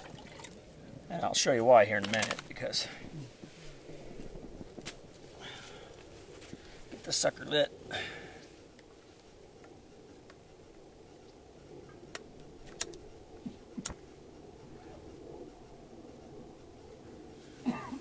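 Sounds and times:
low steady background: 0.0 - 18.0
sharp clicks: 2.0 - 2.7, 11.2 - 14.1.

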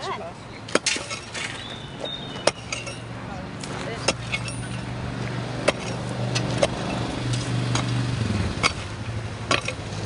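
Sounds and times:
engine humming: 0.0 - 10.0
pickaxe striking gravel: 0.7 - 1.7, 2.4 - 4.9, 5.6 - 8.0, 8.6 - 8.9, 9.5 - 9.8.

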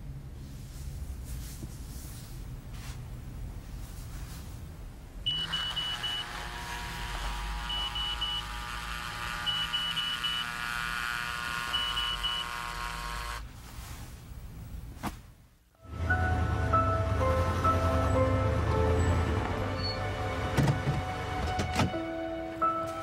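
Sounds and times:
alarm clock beeping: 5.3 - 6.6, 7.6 - 13.4
steady electronic tones: 5.3 - 13.4.

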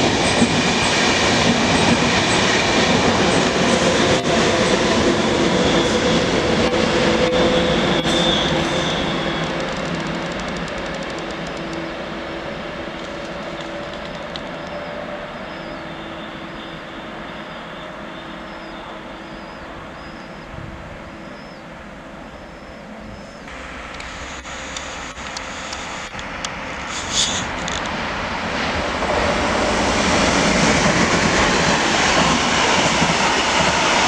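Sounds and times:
electric train rolling and humming: 0.0 - 34.0
freight train rolling: 0.0 - 34.0
clicks and clacks: 9.4 - 11.9, 13.0 - 14.8.

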